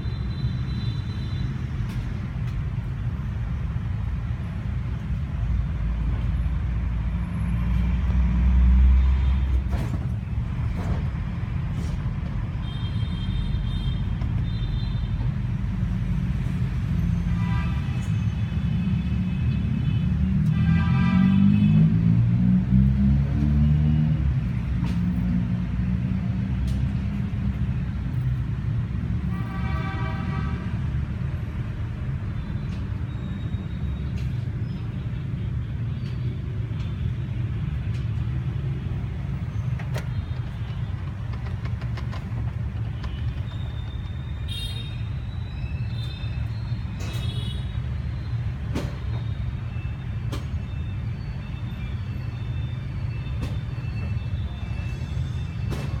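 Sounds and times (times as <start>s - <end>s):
road traffic rumble: 0.0s - 56.0s
vehicle horn: 20.4s - 21.8s, 29.3s - 30.8s, 44.5s - 45.0s.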